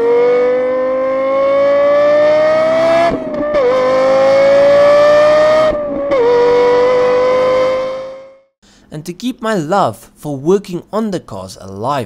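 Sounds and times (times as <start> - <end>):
high engine wail at full throttle: 0.0 - 8.4.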